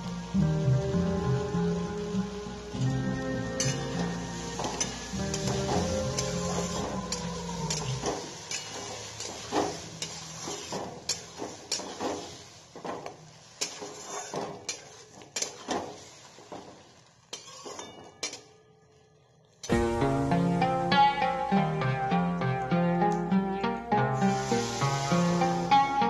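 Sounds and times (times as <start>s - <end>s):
metal spatula scraping a wok: 3.6s - 12.7s, 13.4s - 16.6s, 17.3s - 18.5s.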